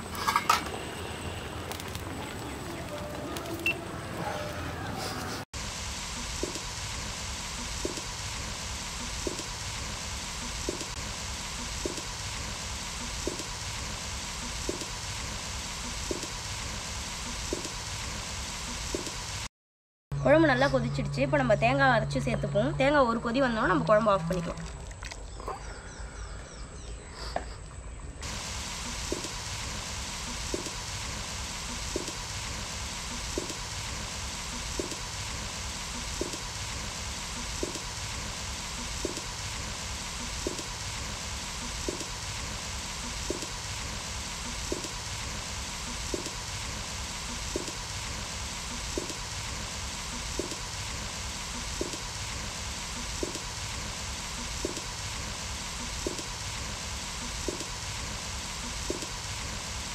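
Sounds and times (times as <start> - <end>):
curry boiling and sizzling: 0.0 - 4.2, 5.5 - 19.5, 23.8 - 25.4, 28.2 - 59.9.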